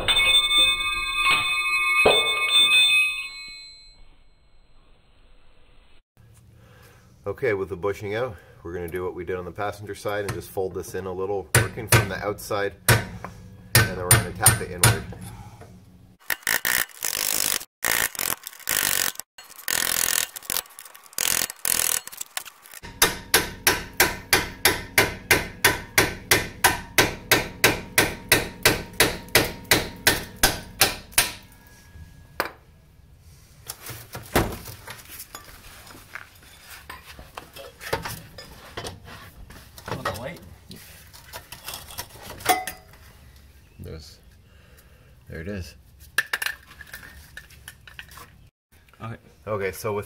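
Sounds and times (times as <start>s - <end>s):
hammer striking chisel on metal: 11.5s - 12.2s, 12.9s - 15.2s, 22.9s - 31.7s.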